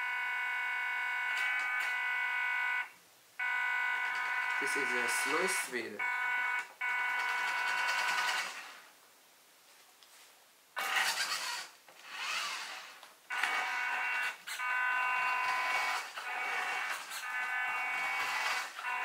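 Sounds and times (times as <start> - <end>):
small electric motor whining: 10.8 - 19.0.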